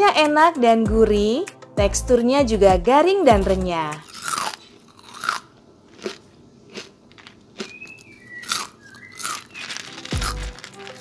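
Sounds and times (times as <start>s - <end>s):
crunchy fried food being chewed: 4.0s - 11.0s.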